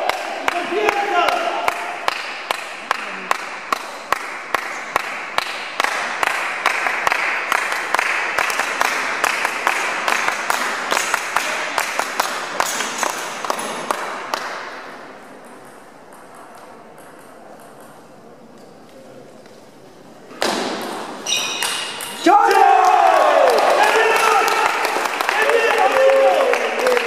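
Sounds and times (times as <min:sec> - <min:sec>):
loud hand claps close by: 0:00.0 - 0:14.8, 0:22.3 - 0:27.0
spectators applauding: 0:22.3 - 0:27.0.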